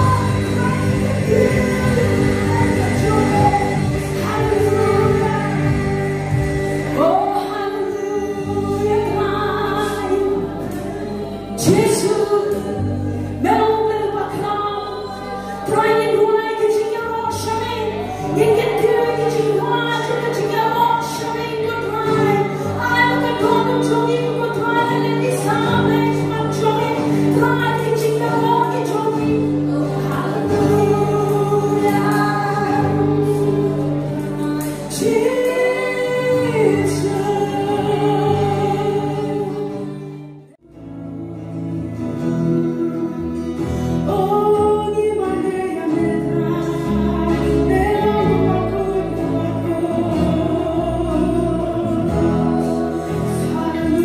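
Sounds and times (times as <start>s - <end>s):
drums: 0.0s - 7.4s
electric bass: 0.0s - 16.2s
acoustic guitar: 0.0s - 54.0s
women singing: 0.0s - 54.0s.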